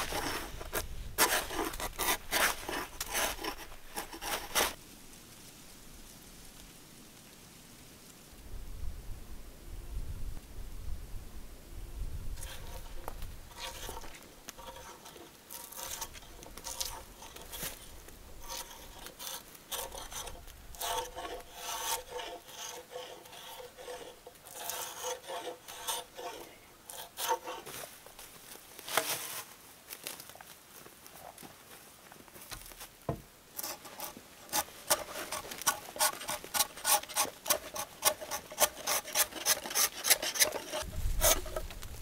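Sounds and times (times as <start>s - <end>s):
wooden log scraping: 0.0s - 4.8s, 12.4s - 29.5s, 32.4s - 42.0s
footsteps in dry leaves: 27.7s - 33.0s.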